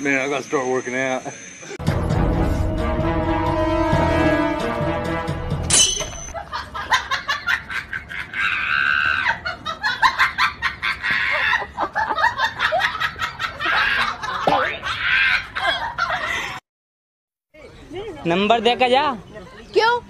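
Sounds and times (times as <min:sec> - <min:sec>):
high-pitched laughter: 0:06.3 - 0:16.6.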